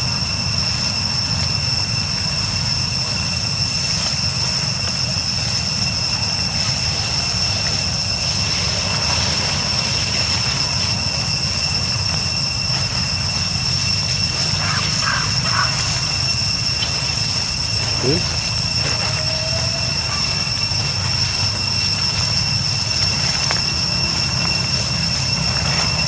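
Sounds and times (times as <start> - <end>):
insect chorus: 0.0 - 26.0.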